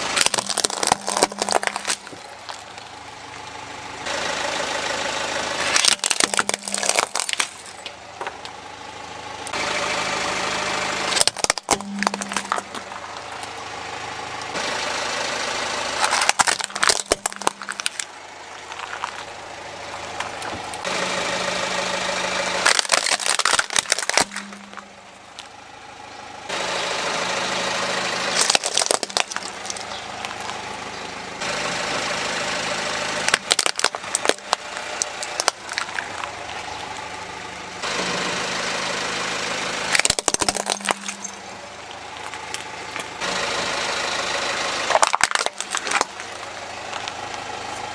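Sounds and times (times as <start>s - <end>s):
plastic toys cracking under tyre: 0.0s - 2.9s, 5.7s - 8.6s, 11.1s - 13.5s, 16.0s - 19.3s, 22.6s - 25.5s, 28.3s - 30.6s, 33.2s - 37.0s, 39.9s - 41.4s, 42.1s - 43.2s, 44.9s - 47.5s
car engine running: 0.0s - 47.9s.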